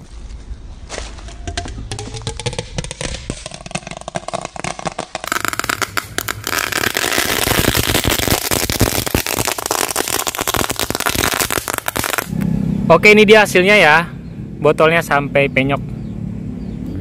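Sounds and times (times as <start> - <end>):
firecracker crackling in plastic bottle: 0.9 - 12.4.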